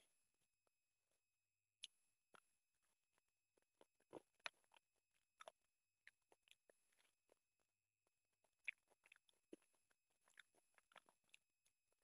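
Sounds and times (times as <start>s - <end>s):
person chewing with wet clicks: 3.2s - 12.0s.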